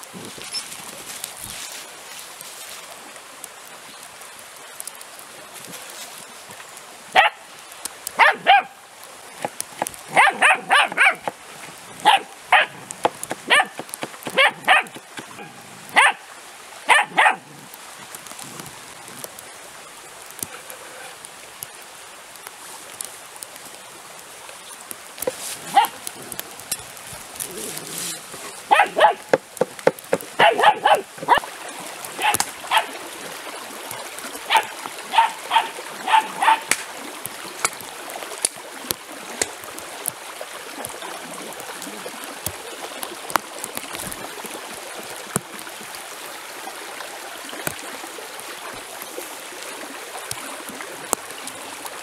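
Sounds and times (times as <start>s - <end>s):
puppy yapping: 8.2s - 8.7s, 10.1s - 11.3s, 12.0s - 12.8s, 13.5s - 16.2s, 16.9s - 17.4s, 28.7s - 29.3s, 30.4s - 31.4s, 34.5s - 36.7s.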